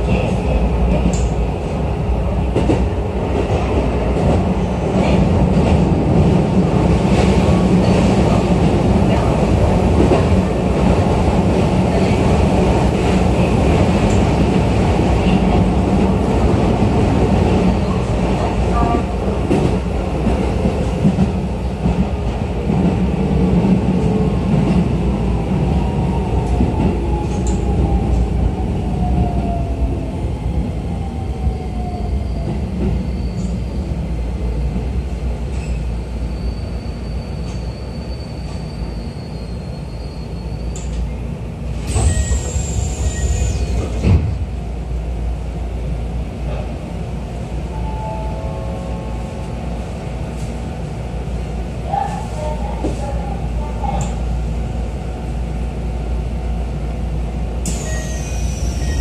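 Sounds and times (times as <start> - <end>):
train running noise: 0.0 - 59.0
high brake squeal: 33.0 - 33.8, 35.6 - 41.0, 41.9 - 43.9, 57.7 - 59.0.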